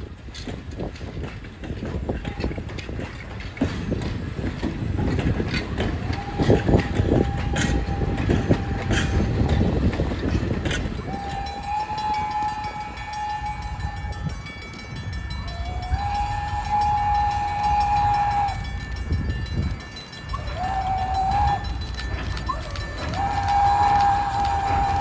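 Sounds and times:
train cars rumbling and clicking: 0.0 - 25.0
steam train whistle blasts: 5.8 - 10.0, 11.0 - 14.6, 15.3 - 19.1, 20.3 - 25.0.

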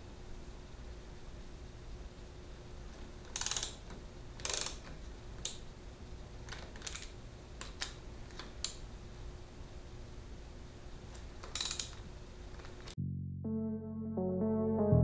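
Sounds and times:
ratchet wrench clicking: 3.3 - 3.8, 4.4 - 5.6, 11.5 - 12.0.

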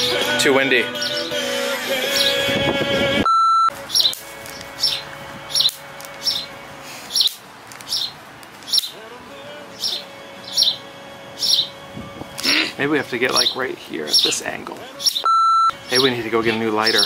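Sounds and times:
background music: 0.0 - 7.0, 8.9 - 17.0
steady bleep: 3.2 - 3.8, 15.2 - 15.8
bird chirping: 3.9 - 6.5, 7.1 - 9.1, 9.7 - 10.8, 11.4 - 11.8, 13.3 - 17.0.

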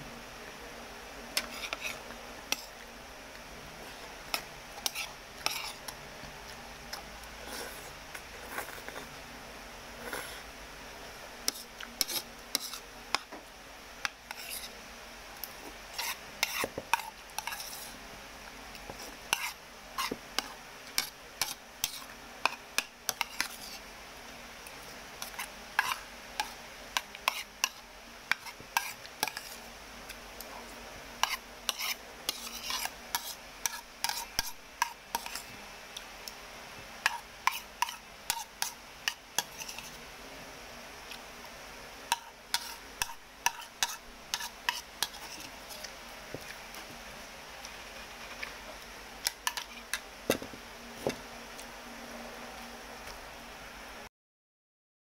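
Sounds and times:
cutlery scraping against a bowl: 1.4 - 2.8, 4.3 - 6.0, 11.5 - 13.3, 14.0 - 14.7, 15.4 - 17.9, 18.8 - 23.8, 25.2 - 29.6, 31.2 - 35.5, 37.0 - 40.0, 42.1 - 45.9, 49.2 - 50.0.

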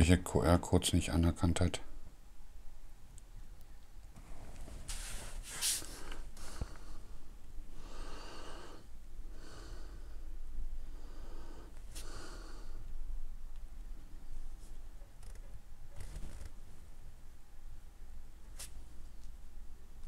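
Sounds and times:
person breathing close to microphone: 5.0 - 13.0.

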